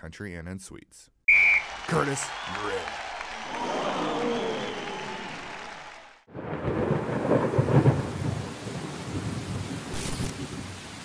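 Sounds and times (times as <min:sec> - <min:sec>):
thunder rumbling: 0:06.3 - 0:10.8
rain falling: 0:06.4 - 0:11.0.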